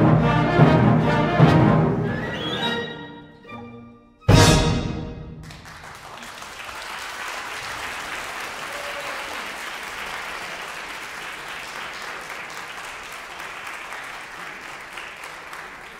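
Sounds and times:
audience applauding: 5.4 - 15.9.

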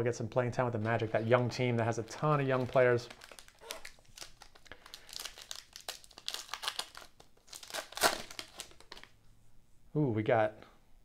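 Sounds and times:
foil wrapper crinkling and tearing: 2.0 - 9.1.

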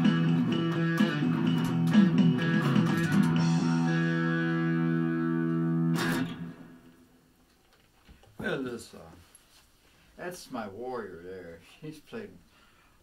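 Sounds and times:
guitar playing: 0.0 - 7.0.

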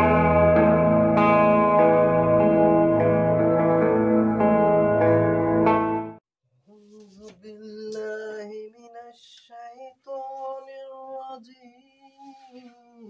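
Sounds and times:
person singing slow melody: 6.7 - 13.0.

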